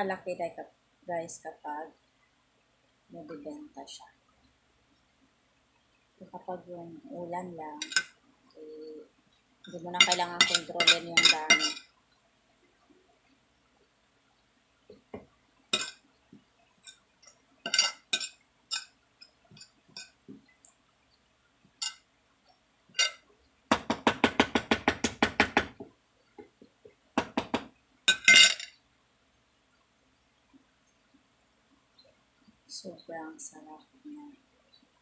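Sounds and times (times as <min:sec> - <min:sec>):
metal spoon clinking on ceramic plate: 0:07.8 - 0:08.1, 0:10.0 - 0:11.8, 0:15.8 - 0:16.0, 0:17.7 - 0:18.9, 0:23.0 - 0:23.2, 0:28.1 - 0:28.7.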